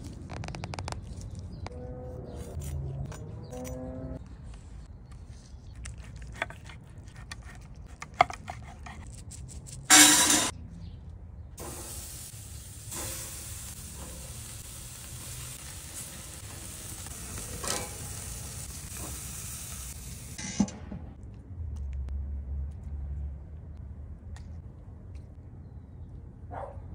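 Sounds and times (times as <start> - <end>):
steak sizzling on grill: 11.6 - 20.4.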